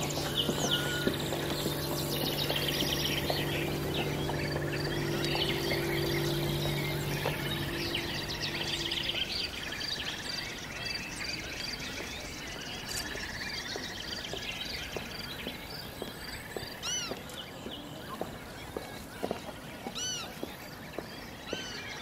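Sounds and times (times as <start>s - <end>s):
low steady hum: 0.0s - 13.6s
birds chirping and trilling: 0.0s - 22.0s.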